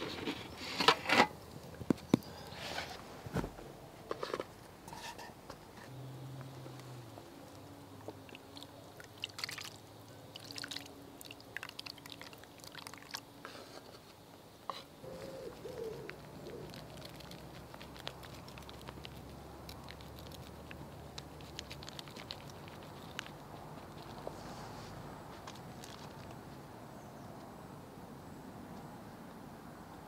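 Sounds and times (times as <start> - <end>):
spoon scraping cast iron pot: 4.1 - 5.9.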